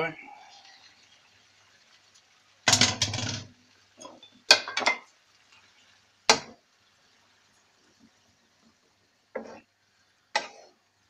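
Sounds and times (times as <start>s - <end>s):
wooden spatula scraping wok: 9.3s - 9.7s.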